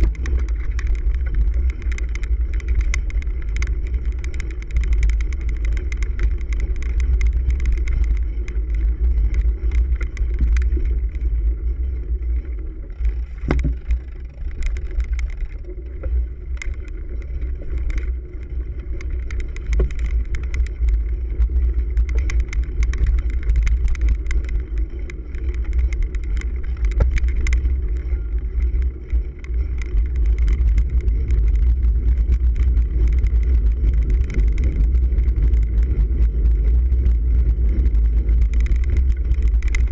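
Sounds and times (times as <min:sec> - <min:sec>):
bike rattles and knocks: 0:00.0 - 0:39.9
bike tyres rumbling: 0:00.0 - 0:39.9
wind on microphone: 0:00.0 - 0:39.9.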